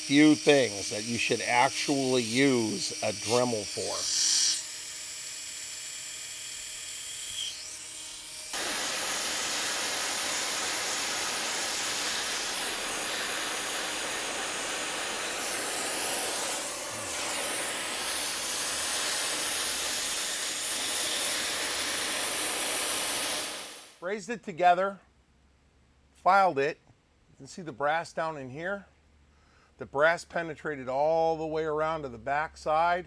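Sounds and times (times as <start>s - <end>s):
torch flame hissing: 0.0s - 4.6s, 7.3s - 24.0s
rotary tool grinding: 0.0s - 23.9s.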